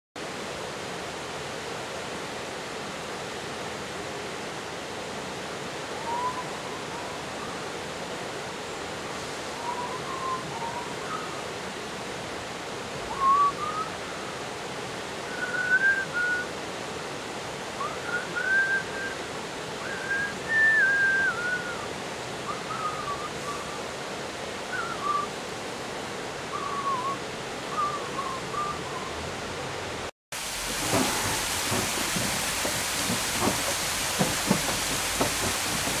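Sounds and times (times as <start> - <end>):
river rushing over rocks: 0.2 - 36.0
whistled notes: 19.8 - 21.9, 26.5 - 29.2.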